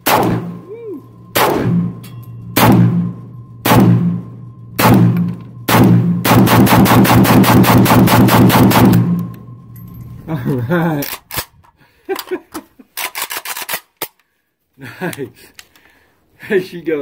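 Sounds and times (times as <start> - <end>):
pistol gunshots: 0.0 - 0.6, 1.4 - 2.0, 2.6 - 4.2, 4.8 - 9.2.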